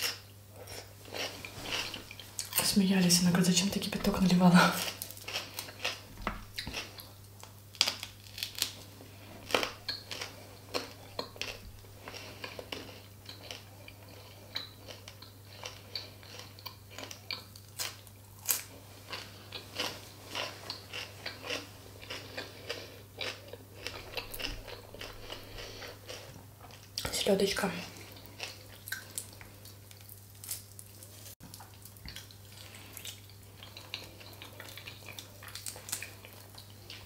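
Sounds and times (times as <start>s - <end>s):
chewing and biting: 9.4s - 27.1s, 31.4s - 37.0s.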